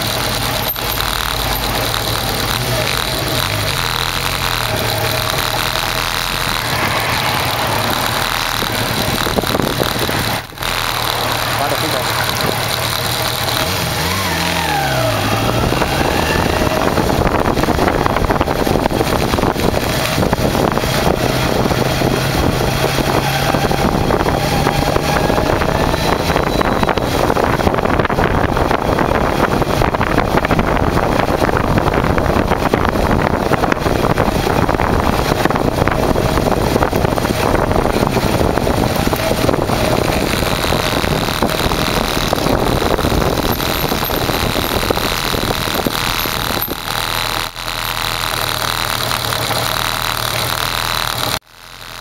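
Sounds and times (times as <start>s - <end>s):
motorcycle engine running: 0.0s - 52.0s
wind rush on microphone: 1.0s - 13.0s, 13.6s - 47.5s.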